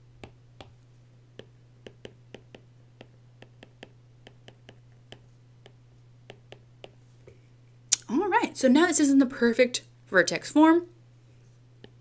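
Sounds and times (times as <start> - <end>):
low electrical hum: 0.0 - 12.0
stylus tapping on tablet: 0.2 - 0.8, 1.4 - 7.0, 11.8 - 12.0.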